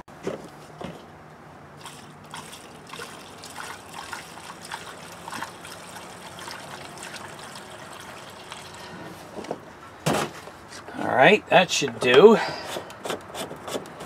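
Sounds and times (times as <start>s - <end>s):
fuel glugging through funnel: 1.8s - 9.4s.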